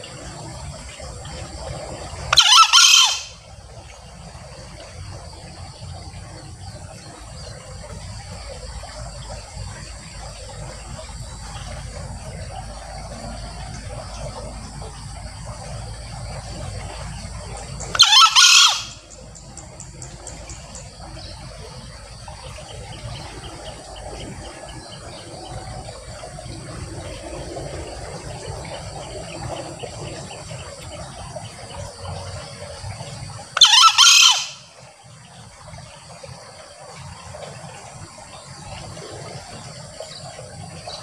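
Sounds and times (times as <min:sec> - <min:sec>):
insects chirring: 0:00.0 - 0:41.0
junglefowl crowing: 0:02.3 - 0:03.4, 0:17.9 - 0:19.1, 0:33.6 - 0:34.7.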